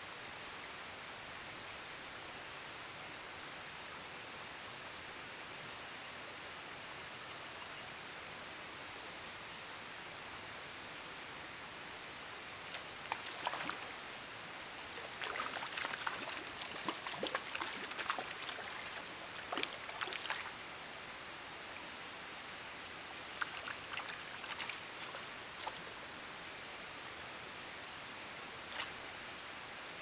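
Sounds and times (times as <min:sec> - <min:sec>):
water splashing: 0:12.7 - 0:14.0, 0:14.7 - 0:20.6, 0:23.3 - 0:26.0, 0:28.7 - 0:29.0.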